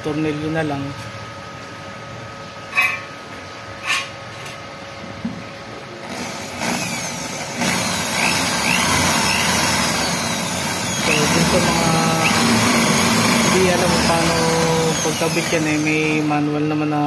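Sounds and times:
electric drill boring into steel: 0:06.0 - 0:16.4.

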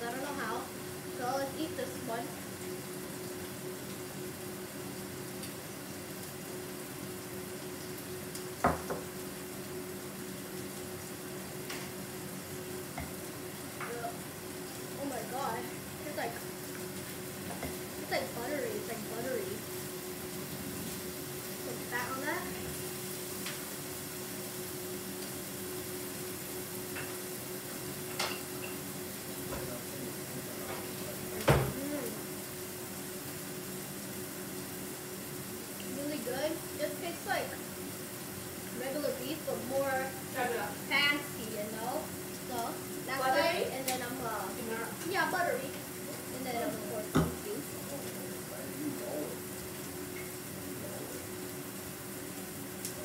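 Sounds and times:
room noise hiss and hum: 0:00.0 - 0:53.0
ceramic dish knocking on table: 0:08.6 - 0:09.1
knock with dull thud: 0:08.6 - 0:09.1, 0:31.4 - 0:31.8, 0:47.1 - 0:47.4.

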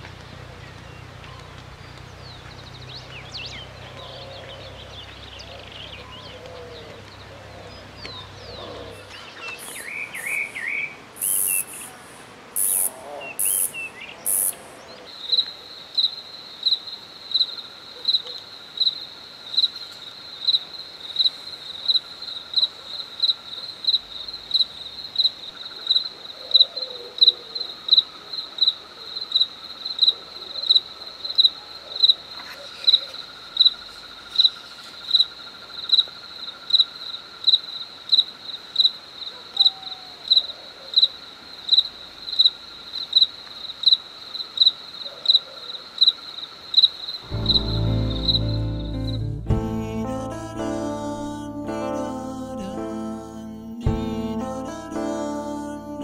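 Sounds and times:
cricket chirping: 0:08.1 - 0:49.2.

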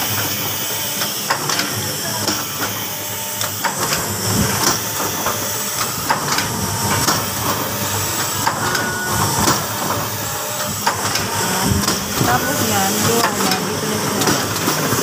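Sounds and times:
machine clattering: 0:03.4 - 0:15.0.

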